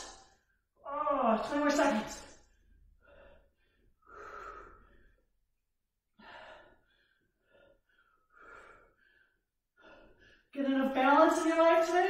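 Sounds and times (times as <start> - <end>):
woman breathing hard: 2.3 - 5.5, 6.1 - 10.6.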